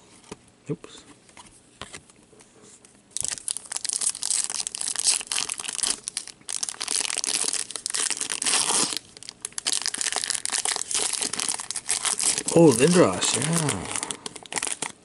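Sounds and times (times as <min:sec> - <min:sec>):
foil pack crinkling and tearing: 0:03.2 - 0:15.0.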